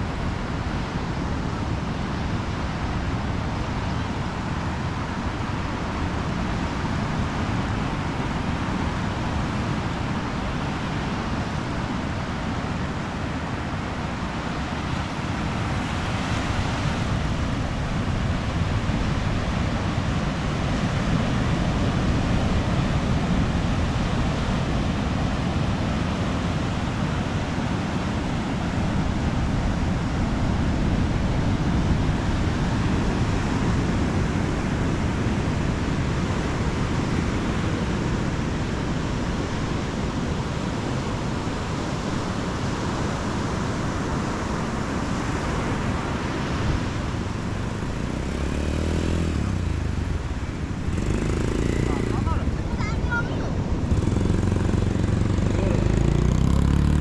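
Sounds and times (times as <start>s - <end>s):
ocean surf breaking: 4.6s - 57.0s
quad bike engine passing: 18.1s - 57.0s.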